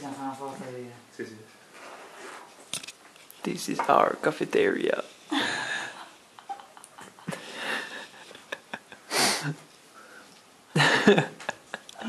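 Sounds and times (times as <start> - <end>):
person breathing hissing bursts: 9.0 - 9.5.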